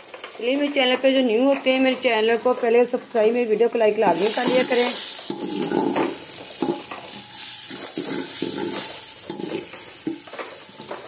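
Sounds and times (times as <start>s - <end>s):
onions sizzling in oil: 0.0s - 11.0s
spoon scraping and knocking pot: 4.4s - 11.0s.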